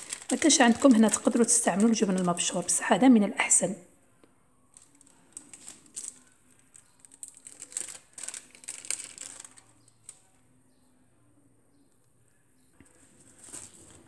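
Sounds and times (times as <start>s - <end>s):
plastic film crinkling: 0.0s - 3.0s, 4.7s - 10.4s, 13.1s - 14.0s.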